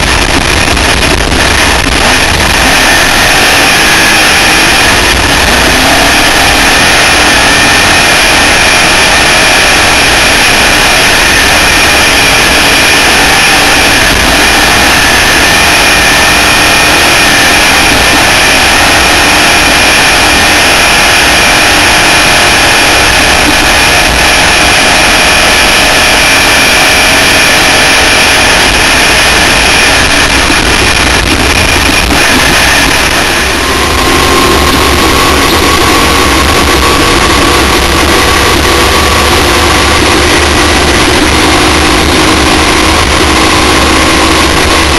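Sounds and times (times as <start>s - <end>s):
engine tones: 0.0s - 44.9s
loud wind roar: 0.0s - 44.9s.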